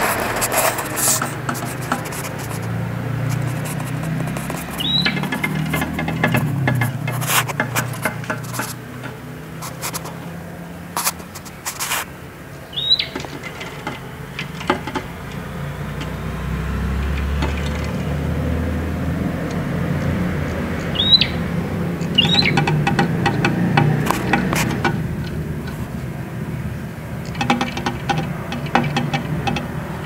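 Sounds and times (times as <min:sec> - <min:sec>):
sharp taps and clicks: 0:00.2 - 0:10.2, 0:19.4 - 0:25.8, 0:27.2 - 0:30.0
bird chirping: 0:04.5 - 0:06.5, 0:12.5 - 0:13.6, 0:20.8 - 0:23.2.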